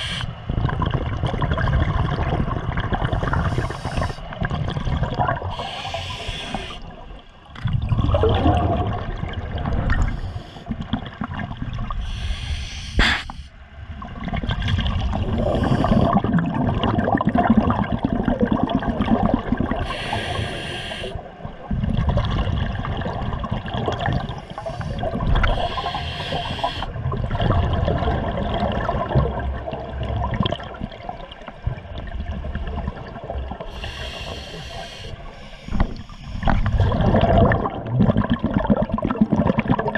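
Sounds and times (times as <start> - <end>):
regulator hissing inhalation: 0.0 - 0.3, 3.3 - 4.3, 5.6 - 6.8, 12.0 - 13.5, 15.5 - 16.2, 19.9 - 21.2, 24.5 - 26.9, 33.7 - 36.5
exhaled bubbles rumbling: 0.0 - 12.4, 13.0 - 20.1, 21.2 - 39.9.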